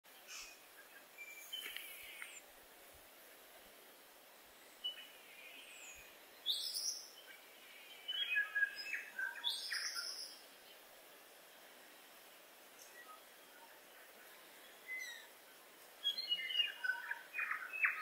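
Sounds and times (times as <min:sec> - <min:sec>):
birds singing whistles: 0:00.2 - 0:02.4, 0:04.7 - 0:10.6, 0:14.6 - 0:15.3, 0:16.0 - 0:18.0.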